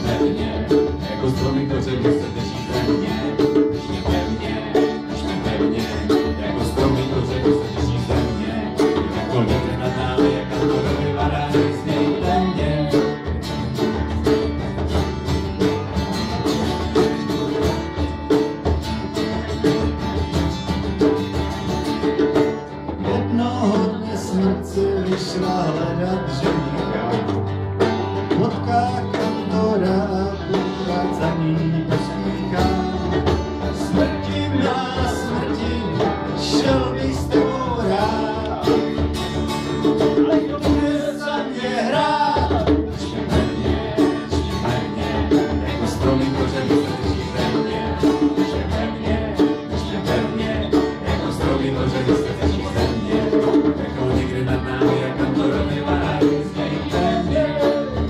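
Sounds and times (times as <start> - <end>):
man singing into a microphone: 0.0 - 13.4, 23.0 - 27.5, 28.3 - 39.1, 40.0 - 58.0
banjo playing: 0.0 - 58.0
double bass playing: 0.0 - 58.0.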